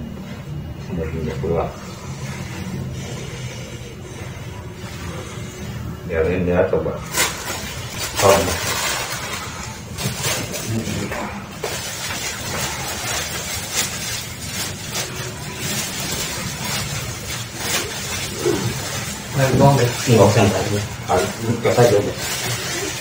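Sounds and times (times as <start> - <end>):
plastic bag crinkling: 7.0 - 23.0.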